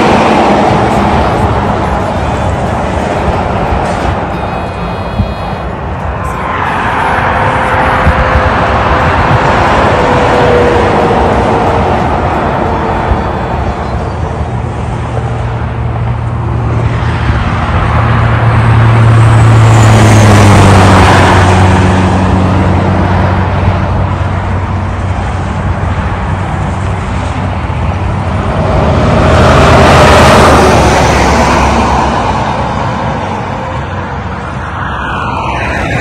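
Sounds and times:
trucks passing on highway: 0:00.0 - 0:36.0.

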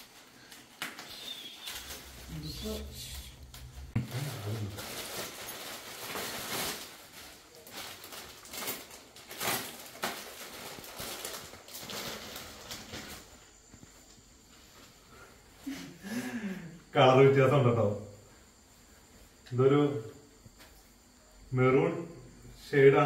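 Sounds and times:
plastic crinkling and rustling: 0:00.0 - 0:14.1.

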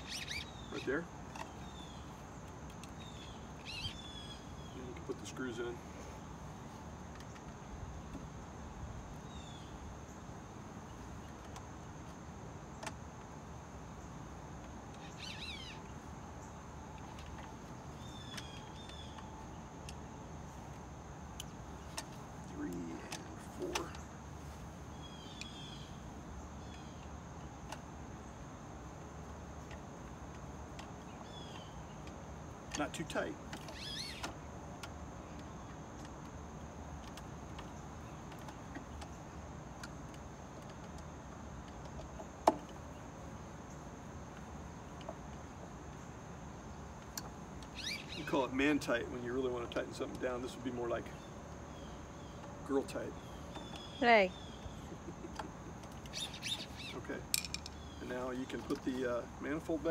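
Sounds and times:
small bird chirping: 0:00.0 - 0:07.6, 0:09.1 - 0:10.3, 0:14.8 - 0:28.4, 0:30.8 - 0:35.8, 0:45.9 - 0:59.8
outdoor background noise: 0:00.0 - 0:59.9
bird whistled call: 0:47.8 - 0:48.3
plastic parts clicking: 0:57.3 - 0:57.8.

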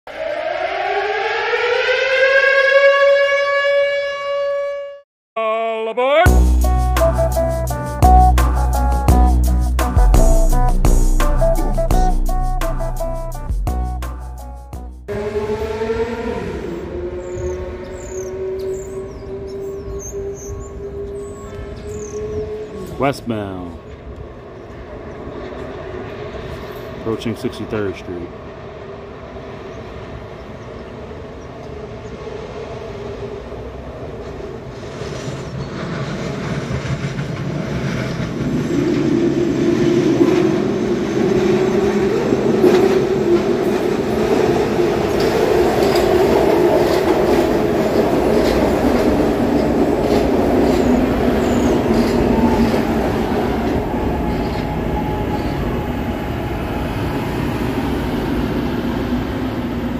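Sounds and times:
elevated train wheels clattering: 0:34.1 - 0:59.9.

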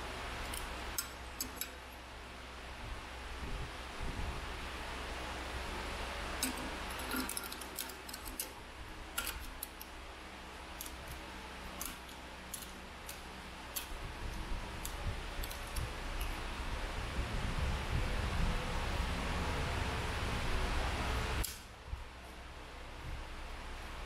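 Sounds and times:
low background hum: 0:00.0 - 0:24.0
metallic clicks and taps: 0:00.4 - 0:01.8, 0:06.4 - 0:08.6, 0:10.8 - 0:14.0, 0:14.8 - 0:16.4.

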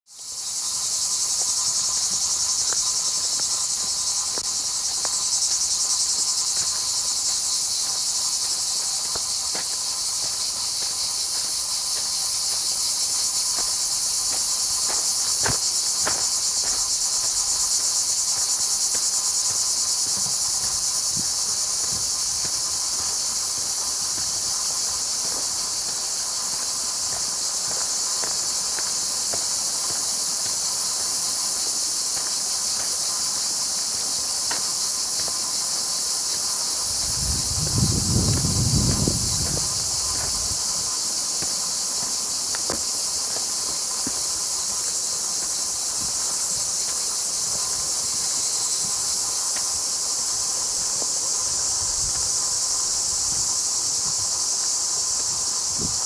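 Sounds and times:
cicadas buzzing: 0:00.1 - 0:56.0.

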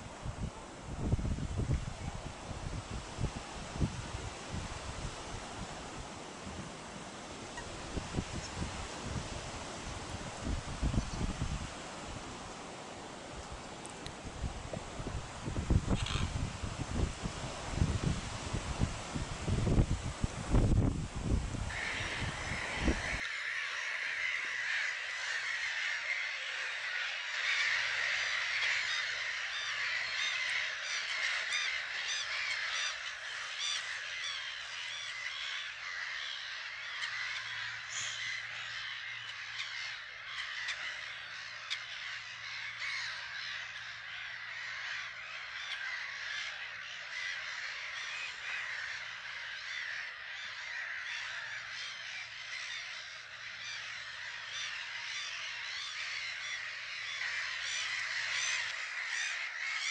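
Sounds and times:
gull colony calling: 0:21.6 - 0:59.9.

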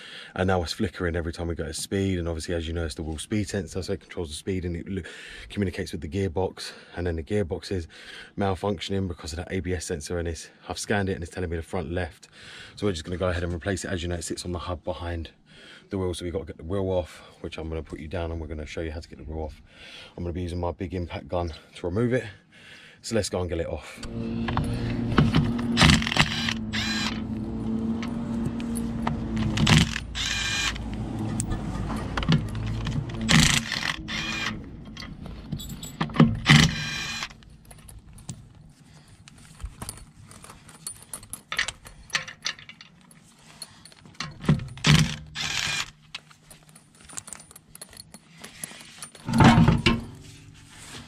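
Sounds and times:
impact gun motor hum: 0:24.0 - 0:34.9, 0:36.2 - 0:37.4, 0:44.7 - 0:46.0
metallic clinks of bolts: 0:34.9 - 0:38.5, 0:40.6 - 0:45.2, 0:46.2 - 0:50.6
impact gun rattling: 0:35.9 - 0:38.4.

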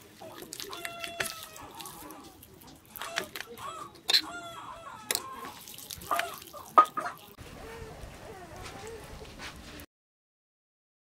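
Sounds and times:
hands kneading meat in a metal bowl: 0:00.0 - 0:07.8
chickens clucking: 0:00.3 - 0:07.8
rooster crowing: 0:03.6 - 0:05.5.

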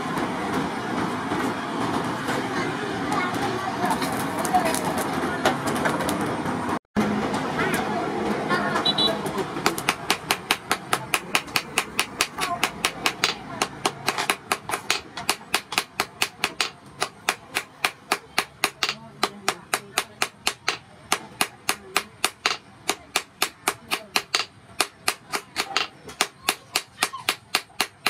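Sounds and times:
hammer striking steel on anvil: 0:09.6 - 0:28.0.

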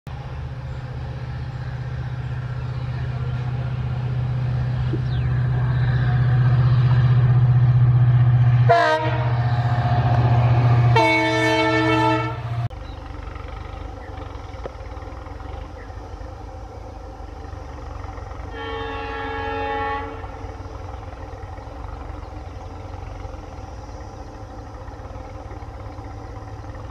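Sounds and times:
diesel locomotive engine drone: 0:00.1 - 0:26.9
distant train horn: 0:02.7 - 0:12.7, 0:17.9 - 0:22.1
train horn blasts: 0:08.6 - 0:12.7, 0:18.4 - 0:20.6.

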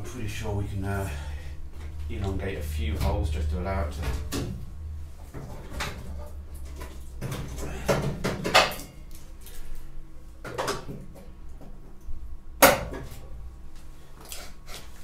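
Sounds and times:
low hum: 0:00.0 - 0:10.4.

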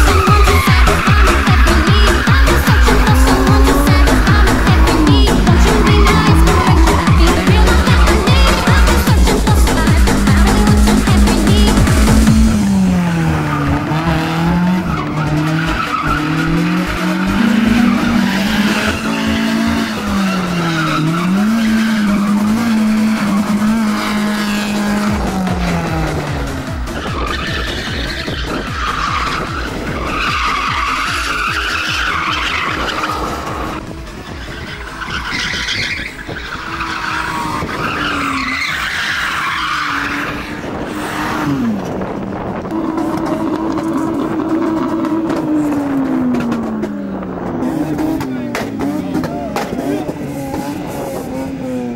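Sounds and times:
tyres screeching: 0:00.0 - 0:42.0
car engine revving hard: 0:00.0 - 0:51.9.

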